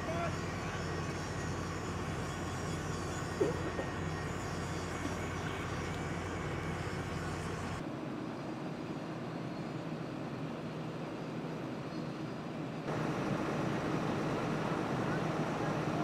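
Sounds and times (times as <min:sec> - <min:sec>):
excavator diesel engines humming: 0:00.0 - 0:07.8, 0:12.9 - 0:16.0.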